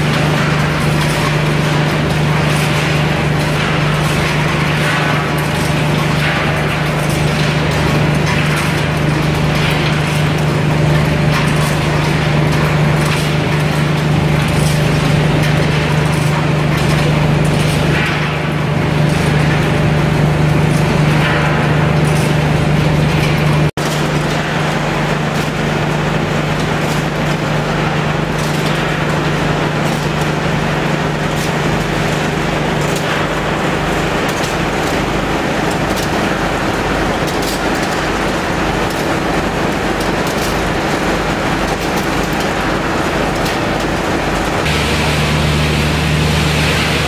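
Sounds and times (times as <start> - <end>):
machinery drone: 44.6 - 47.0.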